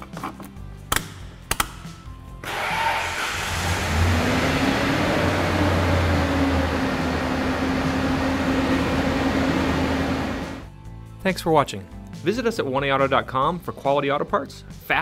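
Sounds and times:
truck engine starting and idling: 0:02.4 - 0:10.7.

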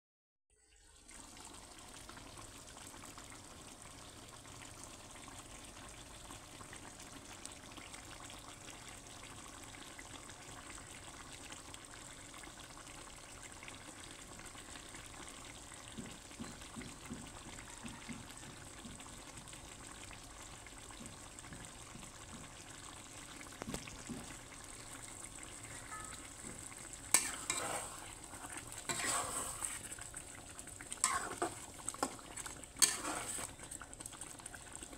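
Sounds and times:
gravy bubbling and sizzling: 0:00.5 - 0:34.9
spatula scraping a pan: 0:25.6 - 0:30.0, 0:31.0 - 0:33.6.

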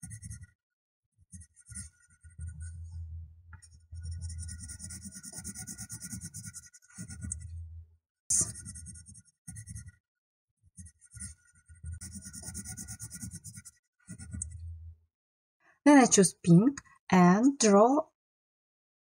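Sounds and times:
pen scribbling on paper: 0:00.0 - 0:00.5, 0:01.3 - 0:02.8, 0:03.7 - 0:07.5, 0:08.3 - 0:10.0, 0:10.8 - 0:14.6.

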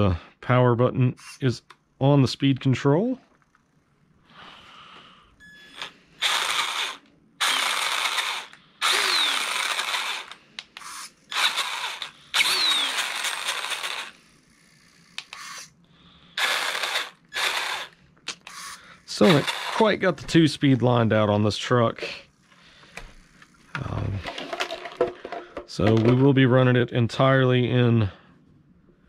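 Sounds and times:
toy truck motor revving: 0:05.7 - 0:20.0.

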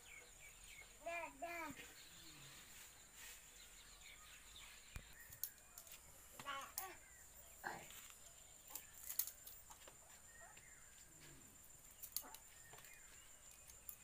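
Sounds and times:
firewood sticks clicking: 0:05.2 - 0:06.9, 0:08.6 - 0:10.0, 0:11.8 - 0:14.0.

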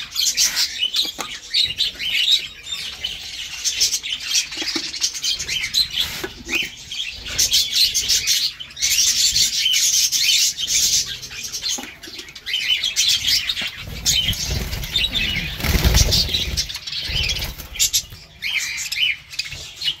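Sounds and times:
budgerigars chirping: 0:00.0 - 0:20.0
wings flapping: 0:13.8 - 0:18.1.

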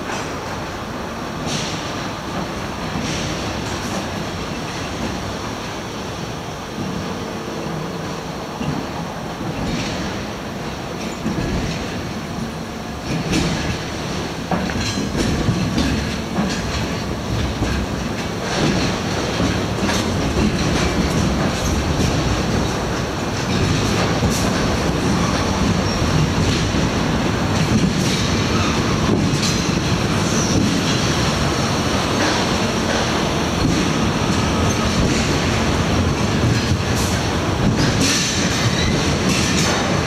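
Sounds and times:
train wheels clattering over joints: 0:00.0 - 0:40.0
wheels squealing on rails: 0:18.9 - 0:40.0.

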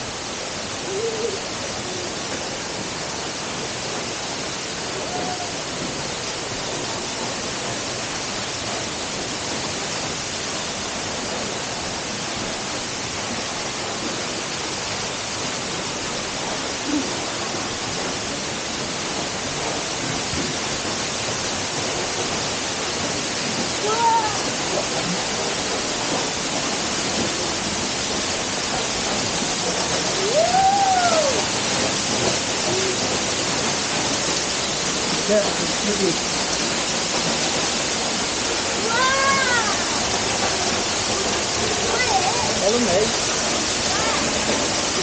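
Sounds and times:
waterfall crashing onto rock: 0:00.0 - 0:45.0
faint hoot-like calls: 0:00.8 - 0:02.1.

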